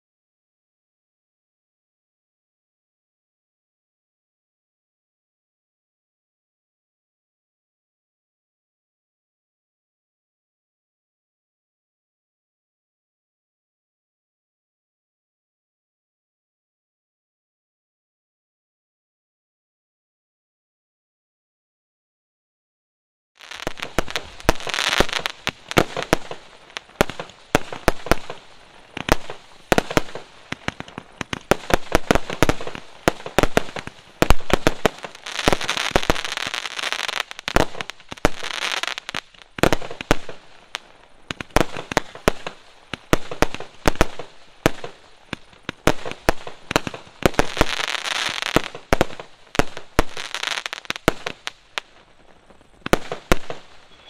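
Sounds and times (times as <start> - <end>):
fireworks bangs: 23.4 - 54.0
fireworks crackling: 23.4 - 54.0.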